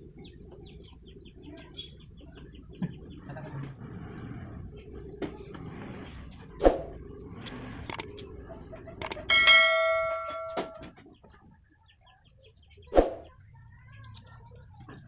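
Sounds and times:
click: 7.9 - 8.2, 9.0 - 9.2
bright ringing chime: 9.3 - 10.9.

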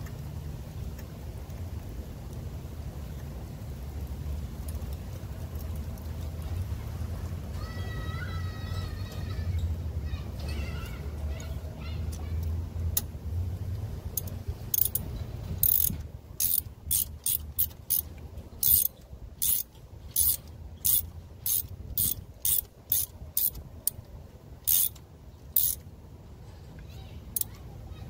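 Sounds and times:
ratchet wrench clicking: 14.1 - 24.0, 24.6 - 25.8.

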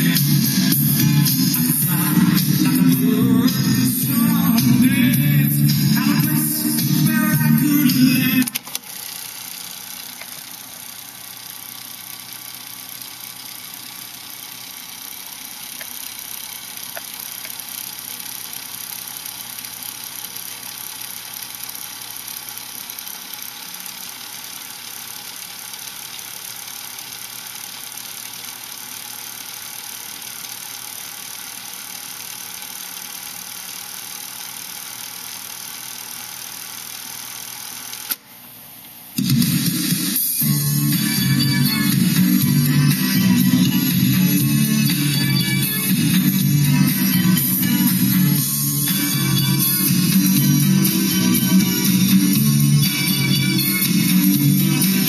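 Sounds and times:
cassette tape fast-winding whir: 0.0 - 55.0.

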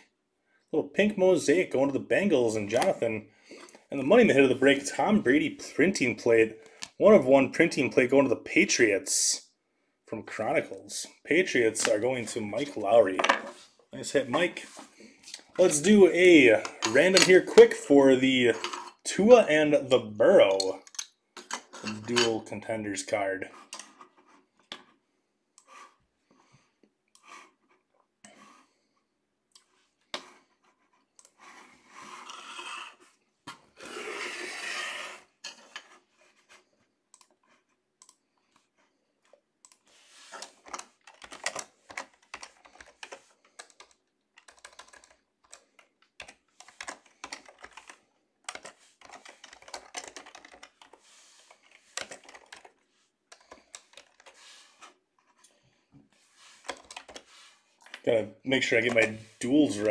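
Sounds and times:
rustling scraping noise: 12.2 - 16.0, 39.9 - 40.8, 50.4 - 59.9.

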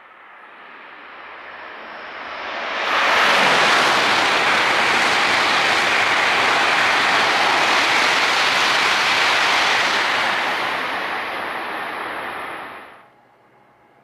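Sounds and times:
high-speed train passing: 0.0 - 14.0.

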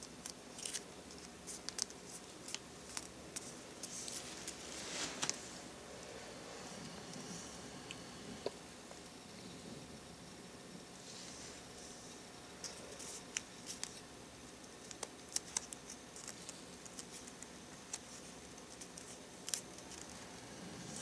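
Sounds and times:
paper being folded: 0.0 - 5.6, 12.6 - 14.0, 14.8 - 20.2.

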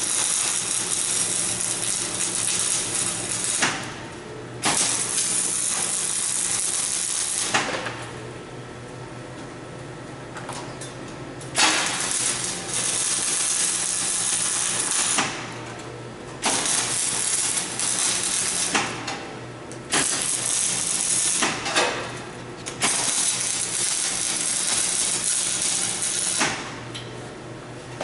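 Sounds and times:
welding arc crackling and hissing: 0.0 - 8.0, 11.5 - 15.6, 16.4 - 19.3, 19.9 - 22.1, 22.7 - 26.8.

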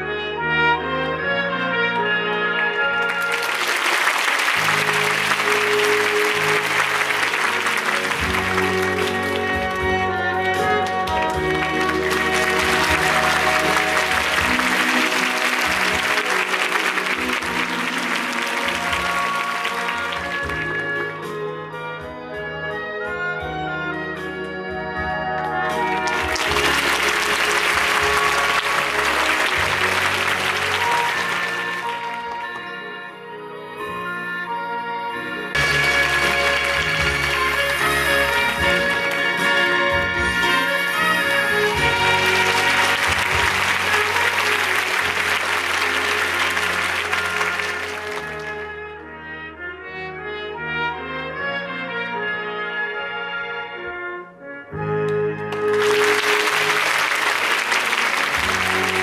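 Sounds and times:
audience applause: 2.5 - 21.1, 25.6 - 32.6, 35.5 - 48.8, 55.5 - 59.0
band music with bass line: 2.8 - 33.0, 35.1 - 48.9, 54.7 - 59.0.

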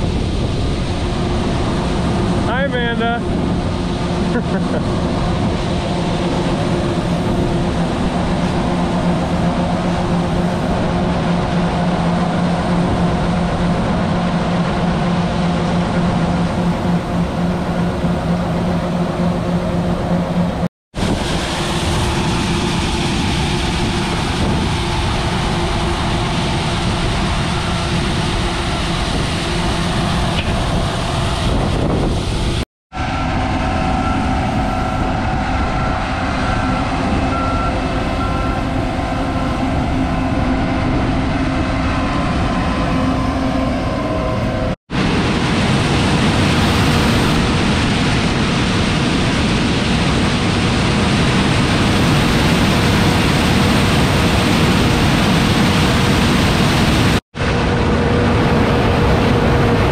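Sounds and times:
combine machinery drone: 0.0 - 59.9.

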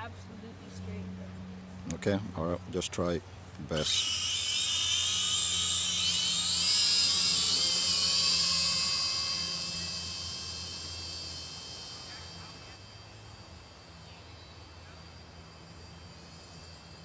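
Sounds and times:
drone motors whining: 3.4 - 17.0.

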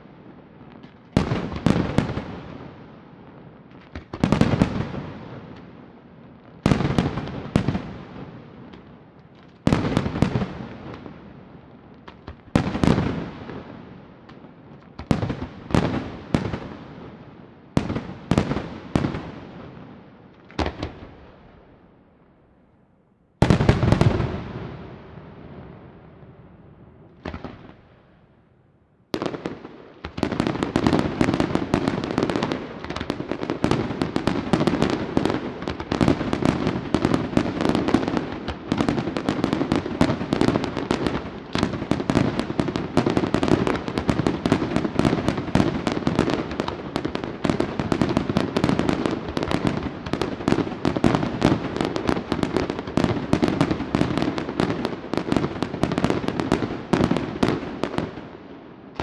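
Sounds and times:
fireworks bangs and crackles: 0.0 - 21.9, 23.4 - 28.4, 29.0 - 59.0.

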